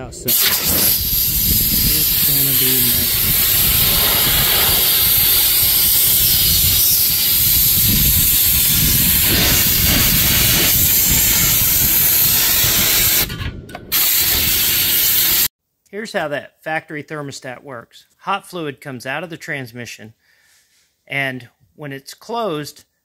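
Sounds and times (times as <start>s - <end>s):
compressed air blow gun hissing: 0.3s - 13.3s, 13.9s - 15.5s.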